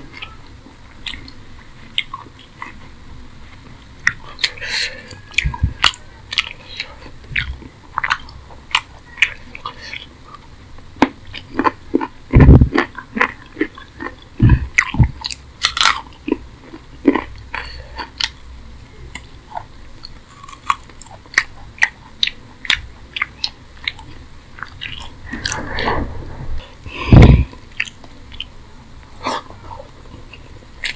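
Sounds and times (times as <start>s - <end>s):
lip smacks: 1.0s - 2.9s, 3.5s - 10.4s
wet chewing: 3.5s - 10.4s, 19.1s - 25.6s
heavy low thumps: 25.1s - 27.6s.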